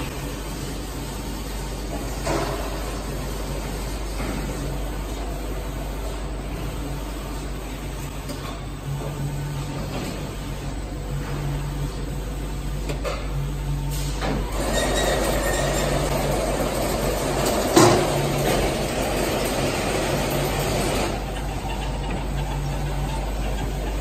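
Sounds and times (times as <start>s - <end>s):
low machine hum: 0.0s - 24.0s
machine rumble: 6.2s - 24.0s.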